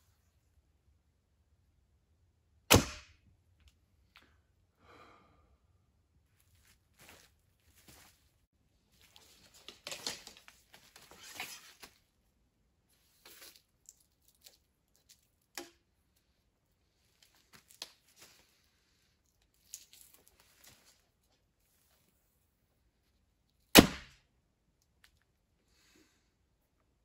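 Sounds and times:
clothing rustling: 0:06.3 - 0:12.2
clicks and taps of bow handling: 0:13.2 - 0:15.9.

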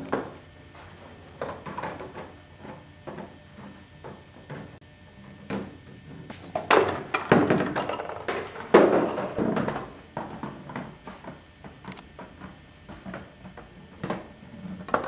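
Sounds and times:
ball-tossing machine clattering: 0:06.5 - 0:10.6.

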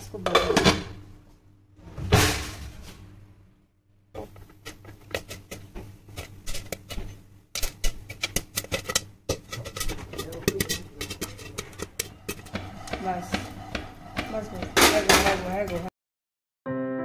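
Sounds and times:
popcorn popping in a covered pan: 0:04.2 - 0:15.9.

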